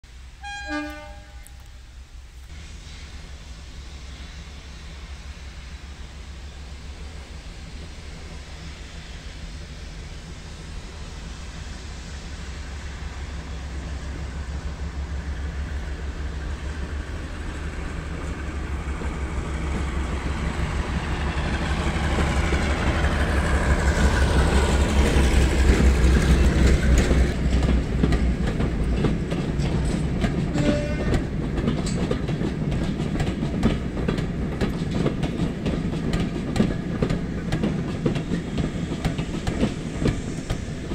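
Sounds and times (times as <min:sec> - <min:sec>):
diesel locomotive engines: 0:00.1 - 0:40.9
wheels clacking over rail joints: 0:16.5 - 0:40.9.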